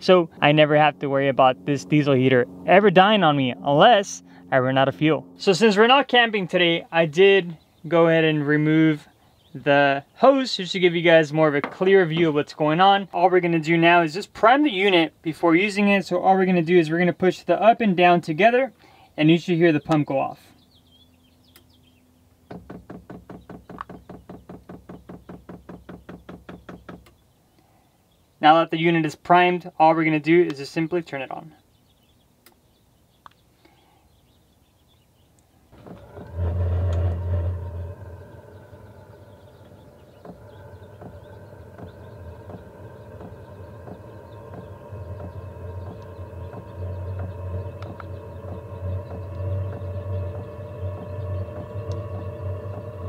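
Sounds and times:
heater blower motor humming: 0.0 - 20.6, 35.7 - 53.0
deep hum: 0.0 - 27.2, 35.4 - 53.0
fuel pump ticking: 35.8 - 53.0.

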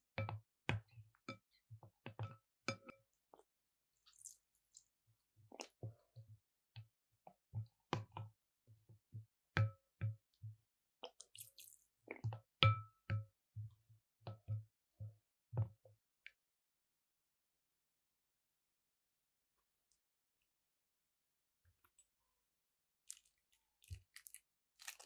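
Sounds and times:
wet slime squishing: 11.0 - 12.3, 23.1 - 25.0.

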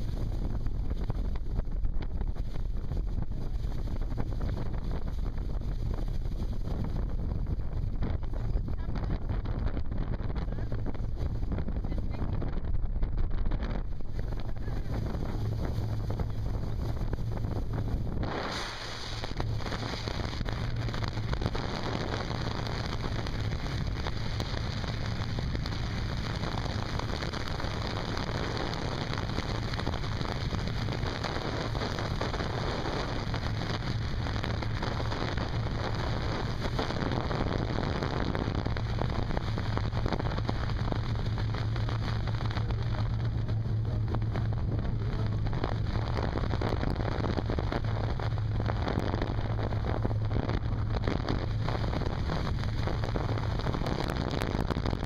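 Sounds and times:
wind rushing: 0.0 - 27.4
boat engine droning: 0.0 - 55.0.

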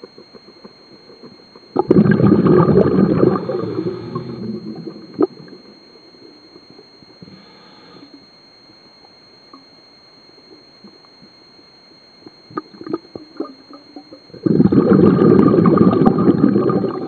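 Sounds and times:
scattered clicks and pops: 0.0 - 7.4, 8.0 - 17.0
underwater exhaled breath bubbling: 1.8 - 5.7, 12.5 - 13.6, 14.3 - 17.0
faint hiss: 3.2 - 15.4.

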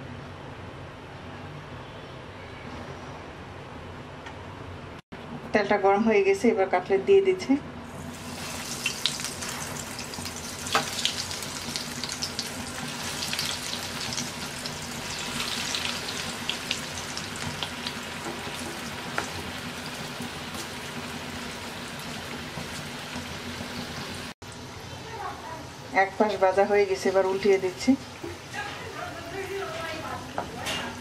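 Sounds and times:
cutlets frying in hot oil: 8.1 - 24.6.

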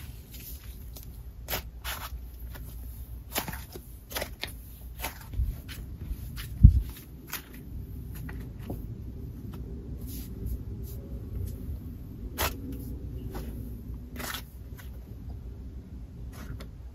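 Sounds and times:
hands squishing slime: 0.0 - 8.7, 12.3 - 15.0.

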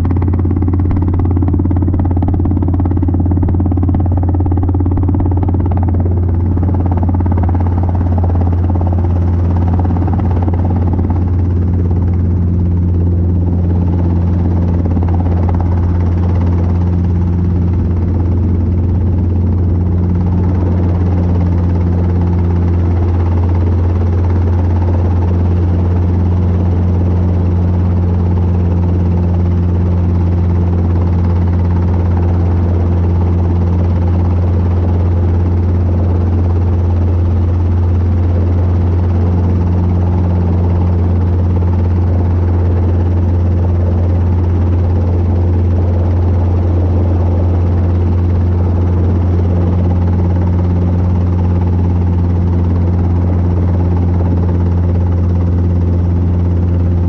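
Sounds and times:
helicopter engine and rotors drone: 0.0 - 57.0.

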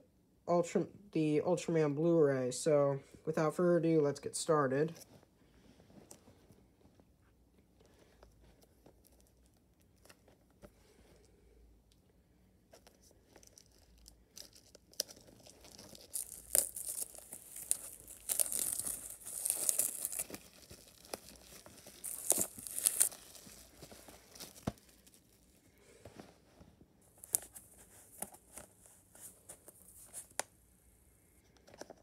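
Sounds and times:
plastic shrink-wrap tearing: 13.4 - 25.6.

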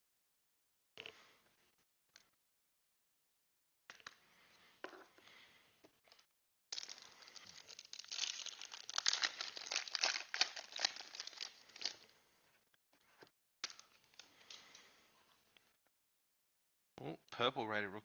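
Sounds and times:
foil wrapper crinkling: 6.8 - 12.1.

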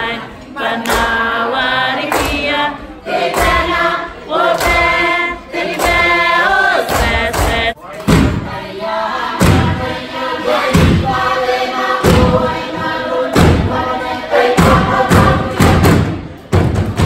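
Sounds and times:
group singing a chant: 0.0 - 16.4
heavy drum beats: 7.0 - 8.6, 9.3 - 17.0.

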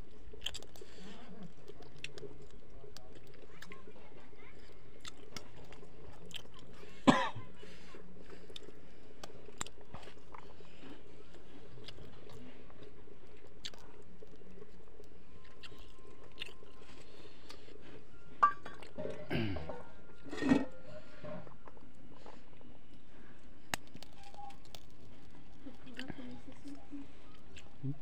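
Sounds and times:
man chewing and lip-smacking: 0.0 - 3.8, 5.0 - 6.7, 8.5 - 18.0.

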